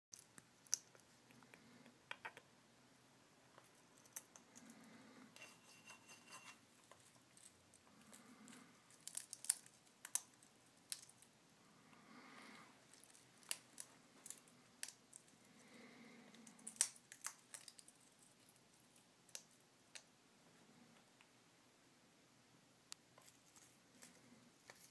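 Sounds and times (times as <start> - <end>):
parrot beak cracking seeds: 3.6 - 4.8, 6.9 - 11.3, 12.9 - 15.3, 16.3 - 20.1.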